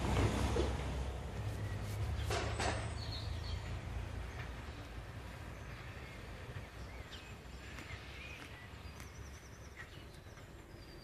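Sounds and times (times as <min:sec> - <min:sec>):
diesel railbus engine rumbling: 0:00.0 - 0:11.0.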